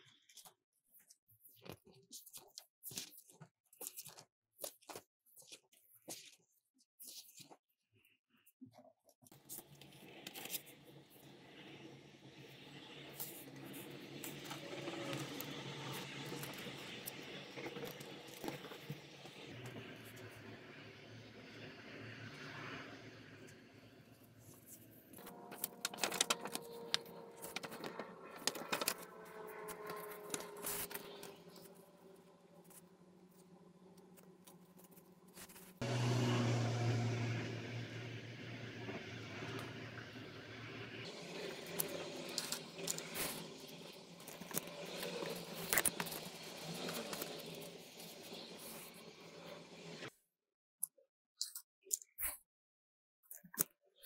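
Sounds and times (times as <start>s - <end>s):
paper rustling and crinkling: 24.5s - 31.8s, 34.1s - 35.8s, 44.2s - 49.0s.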